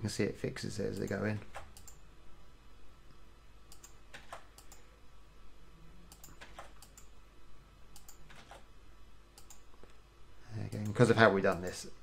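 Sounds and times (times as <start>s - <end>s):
keyboard and mouse clicks: 1.0s - 2.0s, 3.7s - 4.8s, 6.1s - 7.1s, 7.9s - 8.7s, 9.4s - 9.9s.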